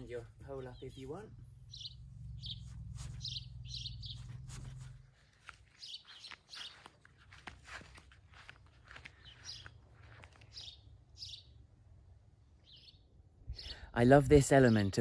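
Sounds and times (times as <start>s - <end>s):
low steady rumble: 0.0s - 5.4s
small birds chirping: 0.0s - 15.0s.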